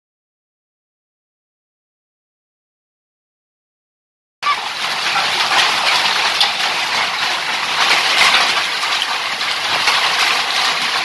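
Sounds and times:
hail and heavy rain on roofs: 4.4s - 11.0s.

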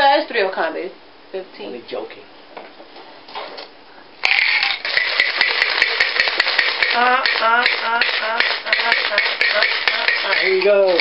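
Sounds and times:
dice rattling in a plastic cup: 4.4s - 7.8s.

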